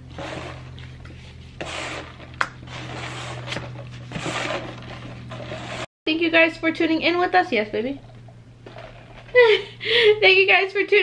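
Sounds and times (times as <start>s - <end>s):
styrofoam rubbing and scraping: 0.0s - 5.9s.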